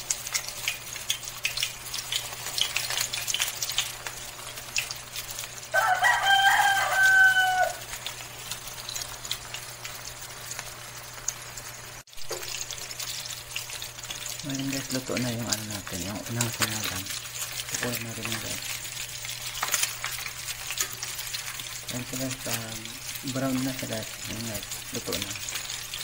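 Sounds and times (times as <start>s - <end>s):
oil crackling and sizzling: 0.0s - 26.0s
rooster crowing: 5.7s - 7.9s.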